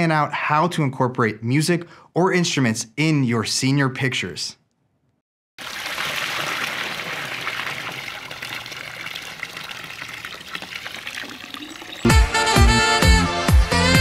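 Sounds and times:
water pouring and splashing: 5.6s - 12.2s.

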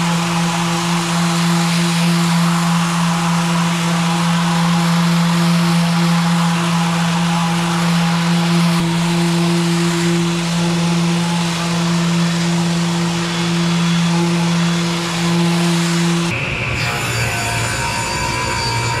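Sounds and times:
orbital sander on wood: 0.0s - 19.0s.

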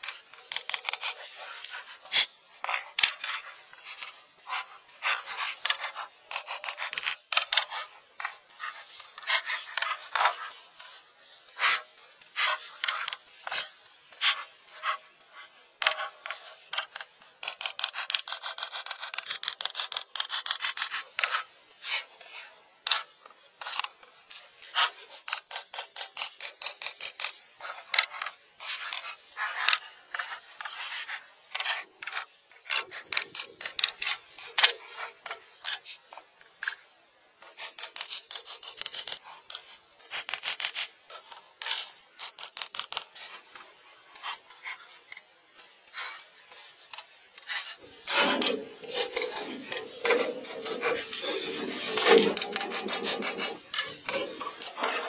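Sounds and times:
dry rasping scratching strokes: 47.5s - 55.0s
low rubbing sound: 47.8s - 55.0s.

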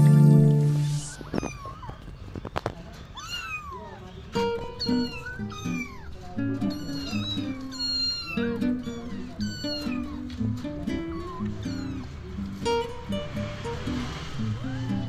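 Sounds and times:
background music: 0.0s - 1.1s
kittens meowing: 1.0s - 2.2s, 3.1s - 12.6s, 14.5s - 15.0s.

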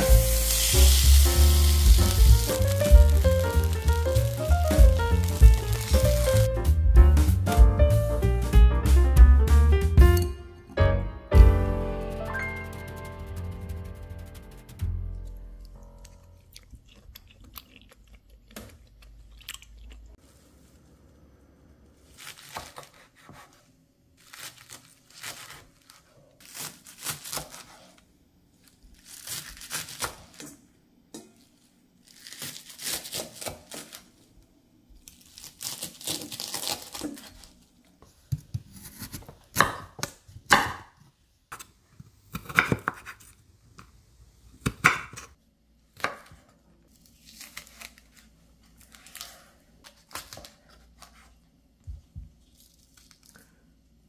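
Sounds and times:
knife slicing chives: 0.1s - 6.5s
knife cutting chili peppers: 0.2s - 6.5s.

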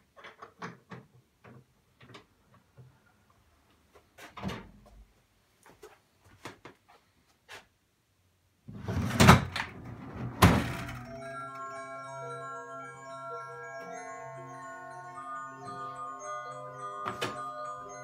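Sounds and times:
chiming mallet percussion music: 10.9s - 18.0s.

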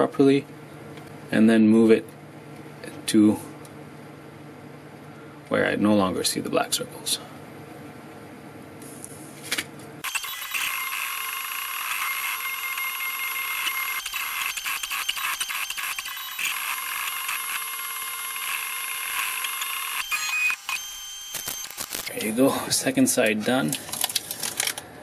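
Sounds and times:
stepper motors whining: 10.0s - 22.3s.

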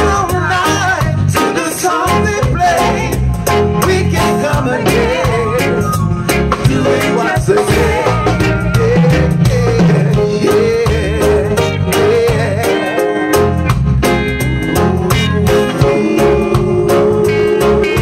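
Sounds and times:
vocal group singing: 0.0s - 13.6s, 14.4s - 18.0s
drums: 0.0s - 18.0s
electric guitar: 0.0s - 18.0s.

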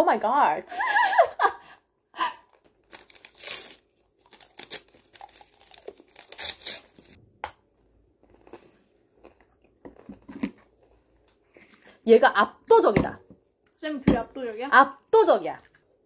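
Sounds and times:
crunching candied fruit: 2.4s - 7.2s, 8.2s - 10.7s.

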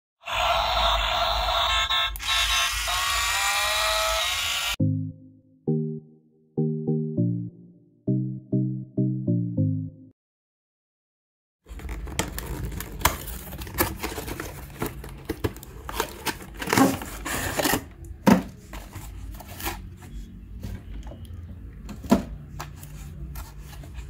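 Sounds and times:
cardboard box rustling: 11.7s - 20.2s.

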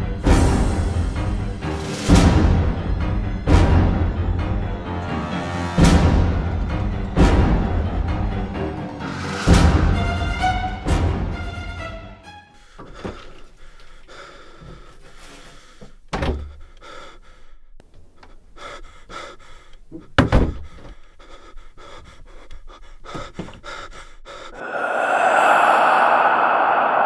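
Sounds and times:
person panting heavily: 12.5s - 27.0s
knocks and thunks: 16.1s - 16.6s, 19.9s - 21.0s
loud harsh sustained sound: 24.6s - 27.0s.

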